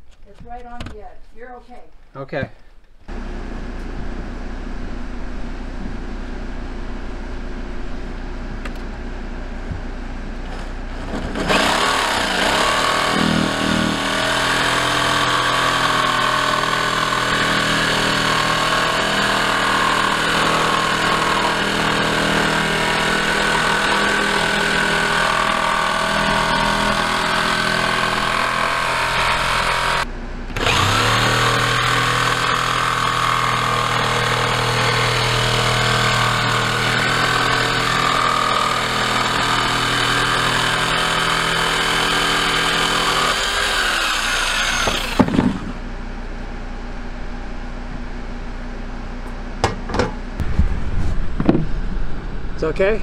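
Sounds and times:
electric jigsaw cutting plywood: 10.9s - 45.8s.

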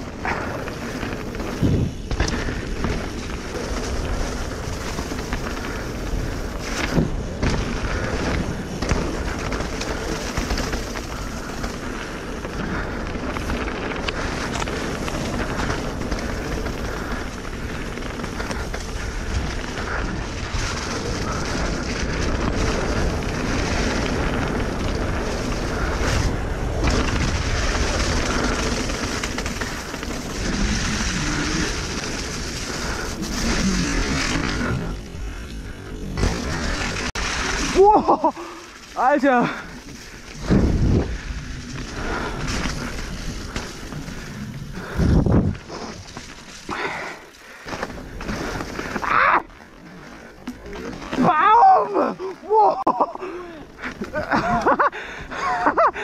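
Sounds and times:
bike rattling over bumps: 0.0s - 56.0s
tyres rushing on wet leaves: 0.0s - 56.0s
wind on microphone: 40.1s - 46.1s.

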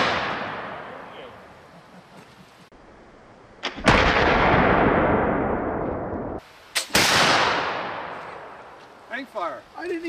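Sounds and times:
rifle shots: 3.6s - 5.8s, 6.8s - 8.2s.

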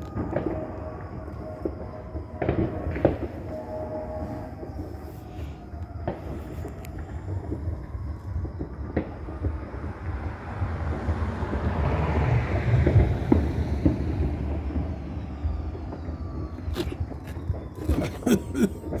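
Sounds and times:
passing vehicle rumble: 7.1s - 18.1s.

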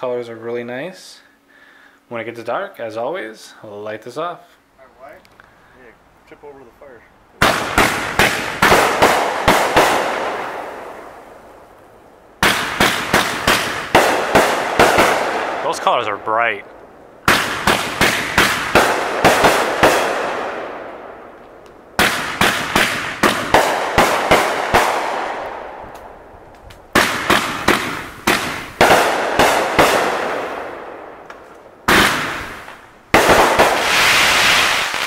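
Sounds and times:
fireworks bangs echoing: 7.4s - 11.7s, 12.4s - 26.3s, 26.9s - 35.0s.

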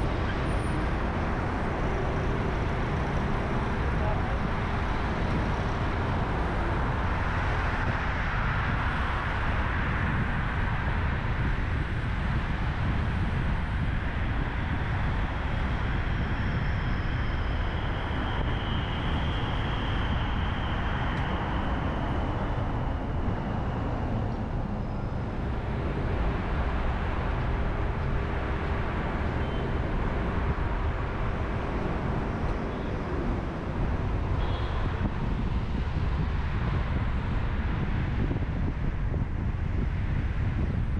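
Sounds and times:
car engine and tyre rumble: 0.0s - 40.9s
faint high whine: 28.0s - 35.8s.

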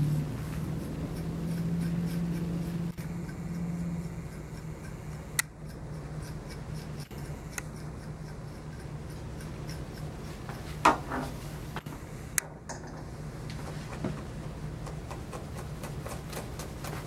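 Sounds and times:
comb scratching through matted fur: 0.0s - 11.7s
steady low hum: 0.0s - 17.0s
sharp clicks: 7.0s - 7.7s.

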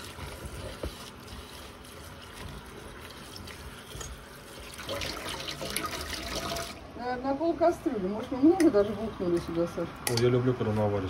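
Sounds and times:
water trickling and splashing: 0.0s - 6.8s.

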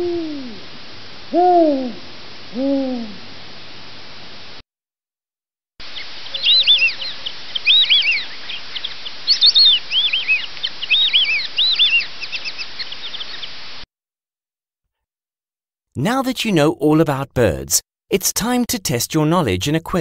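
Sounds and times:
steady hiss: 5.8s - 13.8s
whistling ducks calling: 5.9s - 13.6s.

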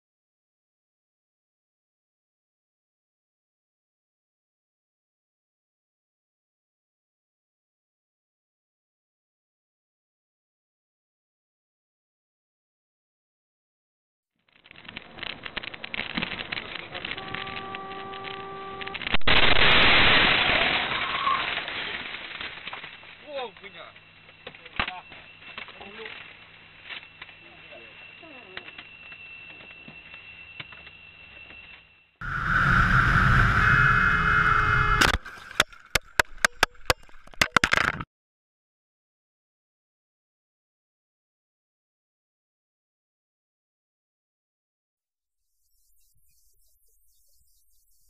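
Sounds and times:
car horn sounding: 17.0s - 19.2s, 33.4s - 35.2s
loud collision crash: 19.0s - 23.3s.

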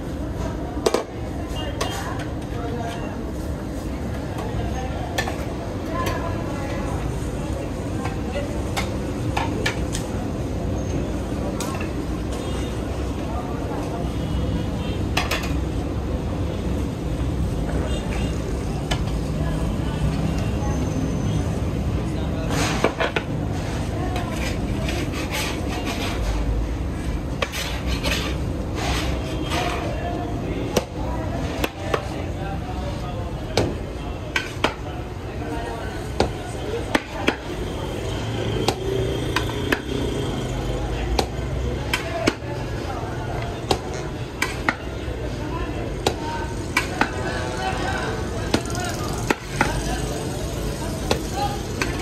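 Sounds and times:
metal ladle scraping pot: 27.4s - 29.7s.

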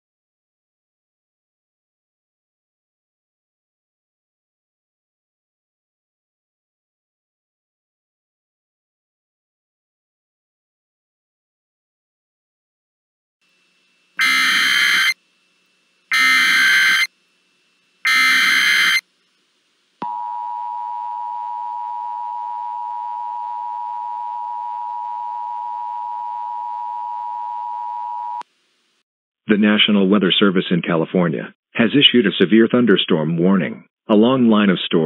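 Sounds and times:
digital header data bursts: 14.2s - 15.2s, 16.1s - 17.1s, 18.0s - 19.0s
two-tone attention signal: 14.2s - 15.2s, 16.1s - 17.1s, 18.1s - 19.0s, 20.0s - 28.4s.

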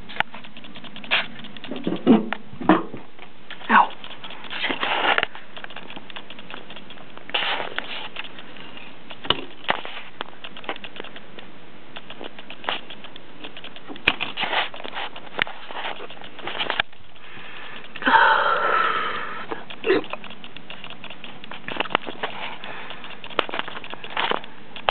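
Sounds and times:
cd crackling and snapping: 0.0s - 2.5s, 3.1s - 18.1s, 19.5s - 24.9s
microwave oven humming: 14.9s - 24.9s.

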